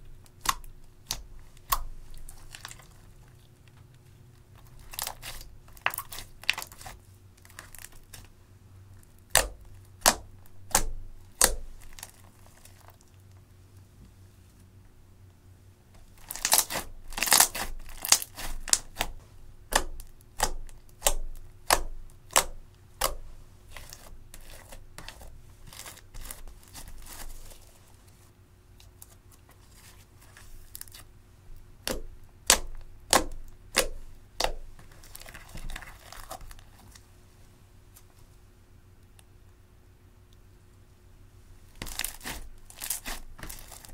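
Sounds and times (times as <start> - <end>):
sticky slime crackling: 0.2 - 3.7, 4.4 - 8.4, 9.2 - 13.2, 16.0 - 27.8, 31.8 - 37.0, 41.7 - 43.9
soft crinkle: 0.4 - 10.5, 11.6 - 14.8, 23.2 - 31.7, 33.8 - 39.2, 41.4 - 43.9.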